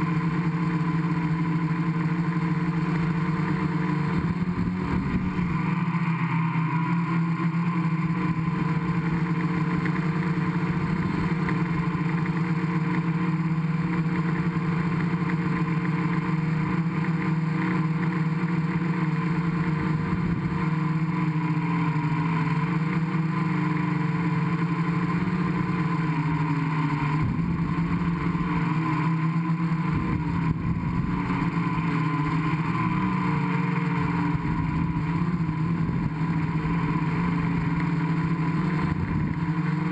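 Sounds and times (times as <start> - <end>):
drone motors humming: 0.0 - 39.9.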